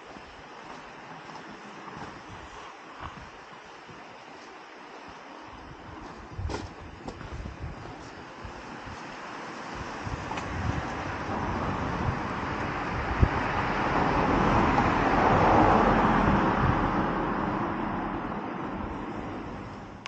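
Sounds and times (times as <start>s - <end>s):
car passing close by: 9.3s - 19.7s.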